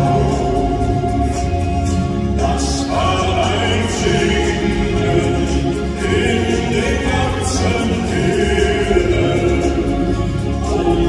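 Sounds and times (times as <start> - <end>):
women backing singers: 0.0 - 11.0
man singing lead: 2.3 - 11.0.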